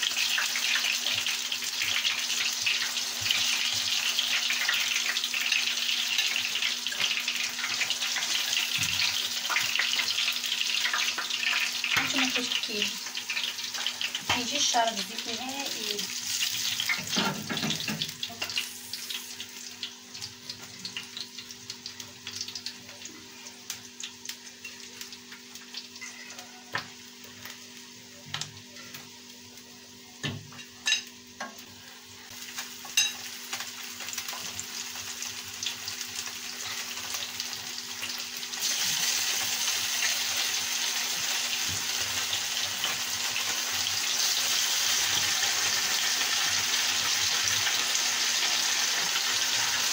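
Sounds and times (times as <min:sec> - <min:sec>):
fish sizzling in hot oil: 0:00.0 - 0:49.9.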